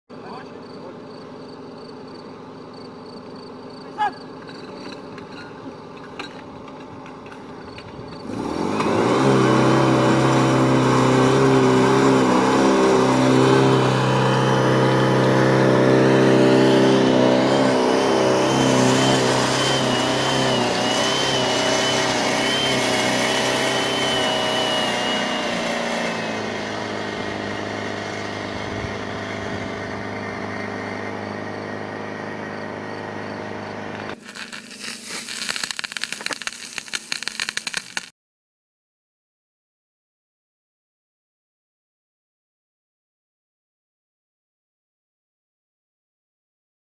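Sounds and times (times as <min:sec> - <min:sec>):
pump engine running: 0:04.3 - 0:38.1
high wavering whine: 0:34.0 - 0:38.1.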